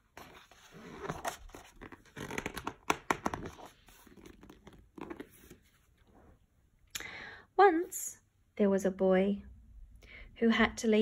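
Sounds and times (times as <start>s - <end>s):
book pages turning: 0.0s - 6.2s.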